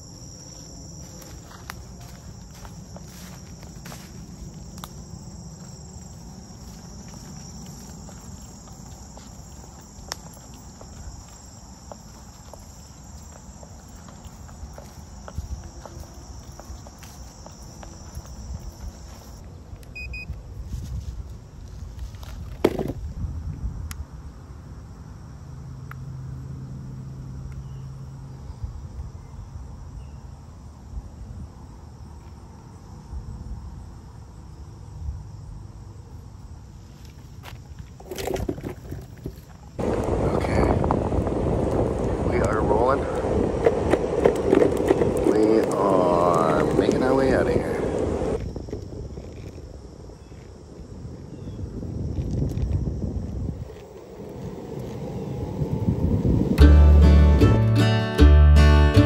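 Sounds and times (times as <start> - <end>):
footsteps: 0.0 - 19.4
handling noise: 0.0 - 19.4, 37.1 - 49.5
insects trilling: 0.0 - 57.3.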